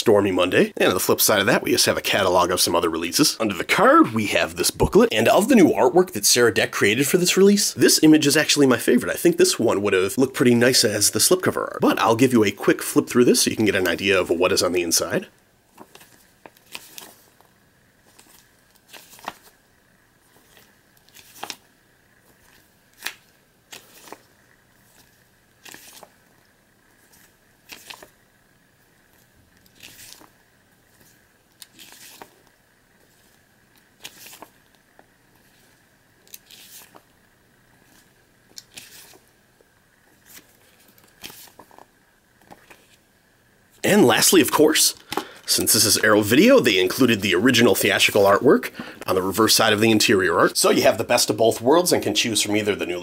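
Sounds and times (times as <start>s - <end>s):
paper pages turning: 13.2s - 19.6s, 20.2s - 28.2s, 28.8s - 37.2s, 37.8s - 39.3s, 40.1s - 43.0s.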